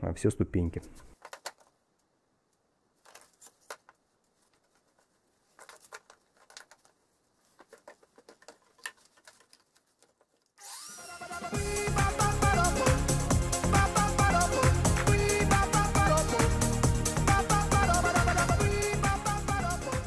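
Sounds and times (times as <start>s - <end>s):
faint clicks and taps: 3.0s - 10.5s.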